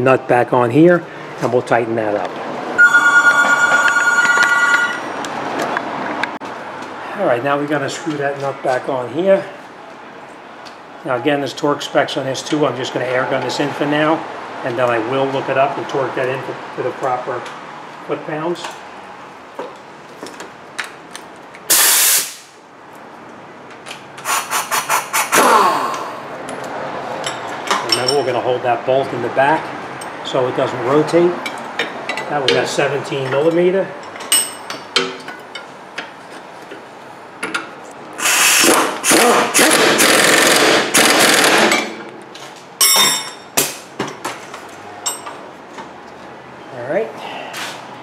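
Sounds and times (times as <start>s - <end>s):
pneumatic impact wrench hammering: 21.7s - 22.5s, 38.2s - 42.0s
air hiss burst: 21.7s - 22.6s, 24.2s - 25.6s, 38.2s - 39.7s.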